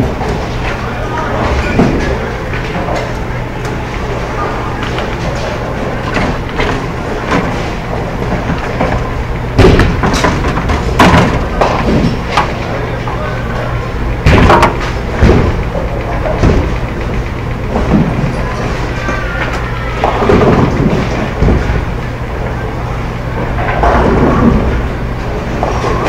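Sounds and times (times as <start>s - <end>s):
voices chattering: 0.0s - 9.6s, 11.4s - 23.8s
bowling balls rolling: 0.0s - 26.0s
bowling pins crashing: 5.0s - 12.9s, 14.1s - 22.0s, 23.5s - 26.0s
knocks of balls and pins: 9.6s - 12.6s.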